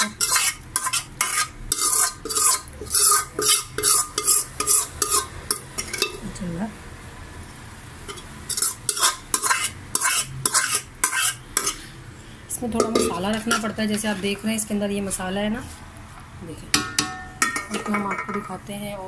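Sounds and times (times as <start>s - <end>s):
steel spoon scraping metal pot: 0.0s - 6.2s, 8.1s - 12.0s, 12.7s - 14.3s.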